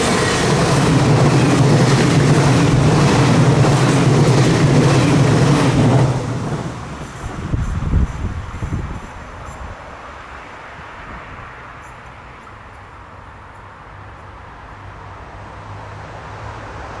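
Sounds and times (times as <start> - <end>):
electric train rumbling: 0.0 - 12.1.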